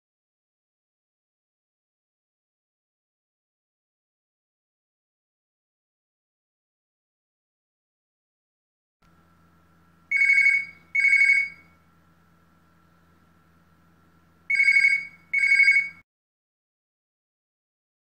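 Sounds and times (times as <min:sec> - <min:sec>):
electronic phone ringing: 0:10.1 - 0:11.8, 0:14.5 - 0:16.0.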